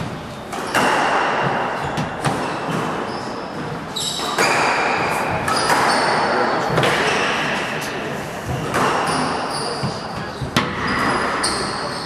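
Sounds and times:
squash ball hits echoing: 0.0s - 7.8s, 8.4s - 11.9s
shoes squeaking on wooden floor: 1.8s - 6.4s, 8.8s - 12.0s.

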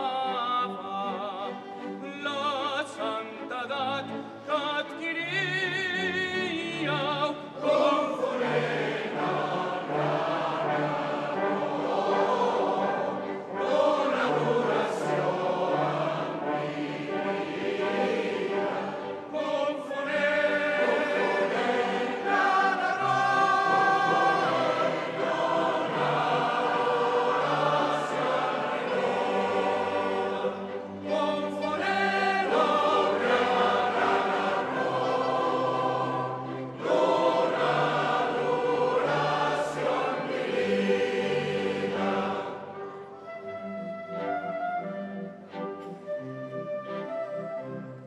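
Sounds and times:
string orchestra: 0.0s - 48.0s
mixed choir singing: 5.1s - 43.1s.

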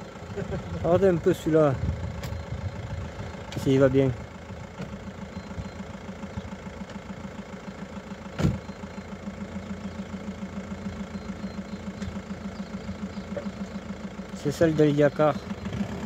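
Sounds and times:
car engine idling: 0.0s - 16.0s
short thump: 8.4s - 8.7s.

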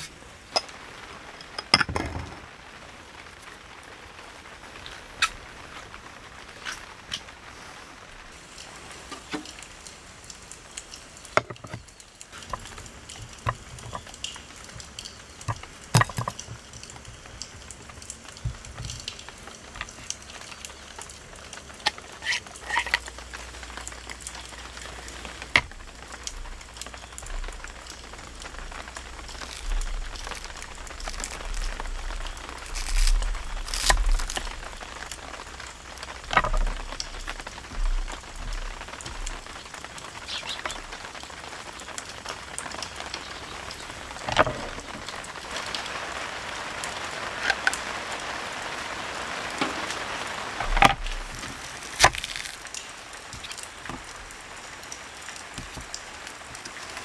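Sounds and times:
rain patter: 0.0s - 57.0s
cookware clicks and knocks: 1.5s - 2.4s.

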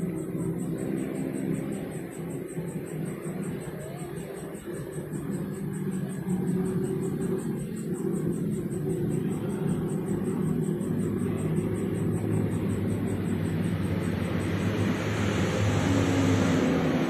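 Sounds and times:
high-pitched pulsing chirp: 0.0s - 17.0s
low engine hum: 0.0s - 17.0s.

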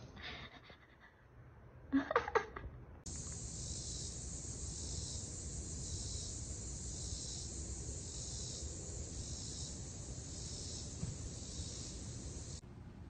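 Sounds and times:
insect chorus hissing: 3.1s - 12.6s.

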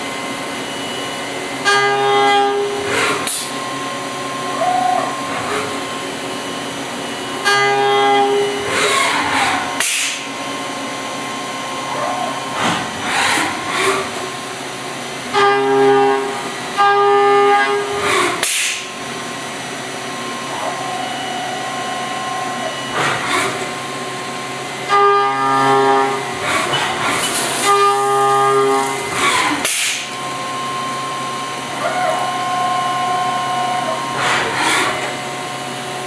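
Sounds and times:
machine hiss: 8.4s - 10.4s, 17.9s - 19.0s, 26.1s - 31.7s.

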